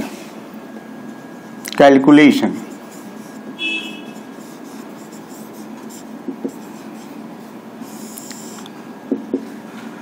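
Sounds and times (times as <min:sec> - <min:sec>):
marker writing on whiteboard: 0:02.7 - 0:07.2, 0:07.8 - 0:09.5
marker tapping: 0:04.4 - 0:07.1, 0:08.1 - 0:09.5.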